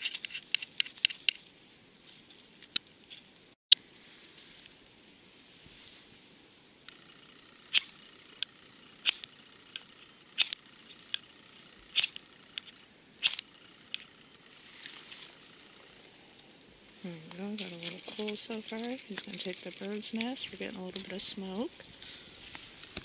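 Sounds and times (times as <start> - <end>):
knife scraping flint rod: 0.0 - 1.5, 11.9 - 14.1.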